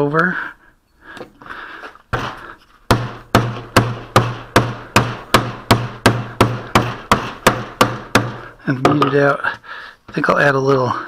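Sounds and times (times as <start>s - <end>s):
mallet beating putty: 2.9s - 9.1s.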